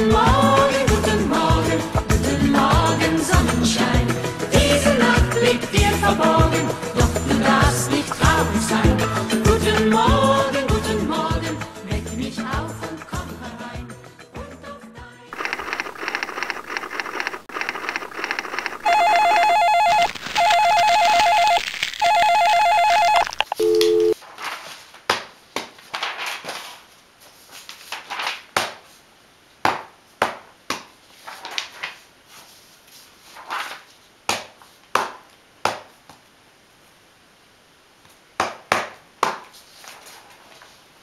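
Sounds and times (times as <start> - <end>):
electronic telephone ringing: 15.4 - 24.2.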